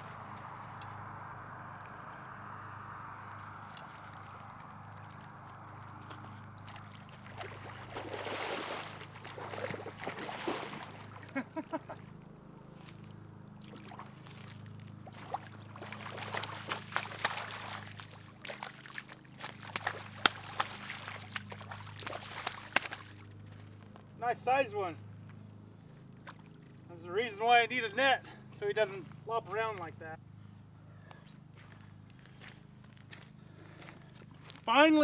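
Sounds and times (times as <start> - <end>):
fish slapping at water's edge: 6.1 - 11.4, 13.6 - 23.3
fish splashing in water: 6.1 - 11.4, 13.6 - 23.3.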